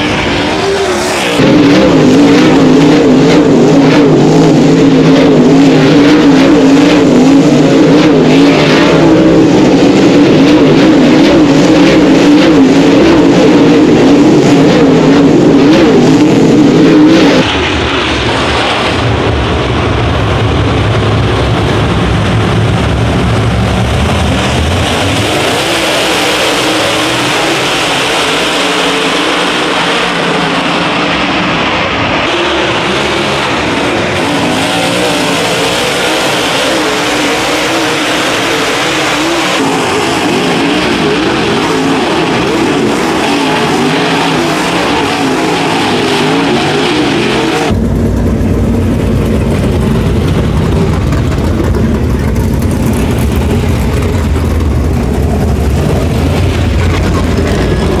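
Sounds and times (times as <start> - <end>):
race car engines running hard: 0.0 - 58.0.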